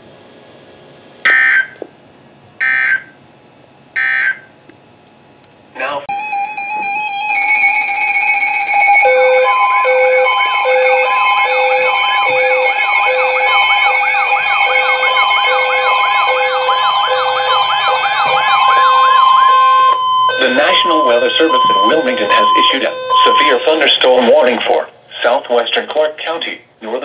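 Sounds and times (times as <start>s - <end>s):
on-off beeping alarm: 2.6s - 3.1s, 4.0s - 4.5s, 6.1s - 24.5s
warbling siren-like alert: 4.0s - 4.5s, 6.1s - 24.5s
weather radio alarm tones: 6.0s - 24.8s.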